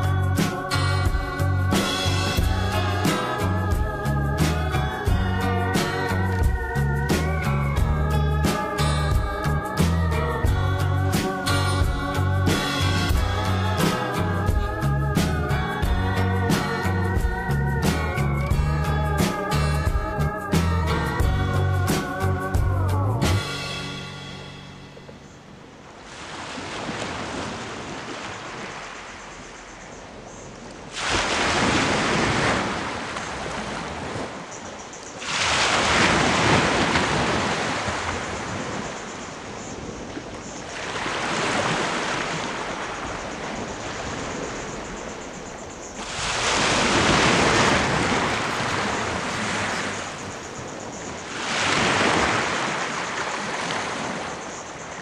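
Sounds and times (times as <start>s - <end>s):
small waves washing on pebbles: 26.0s - 29.2s, 30.8s - 55.0s.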